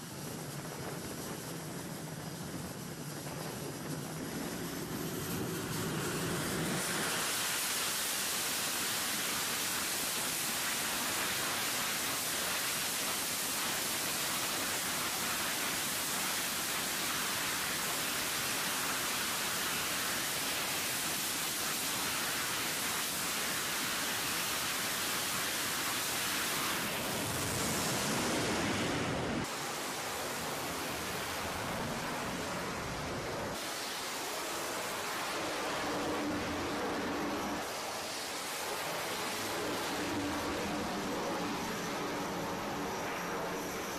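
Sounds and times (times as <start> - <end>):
jet engines roaring: 0.1 - 8.5, 24.9 - 43.9.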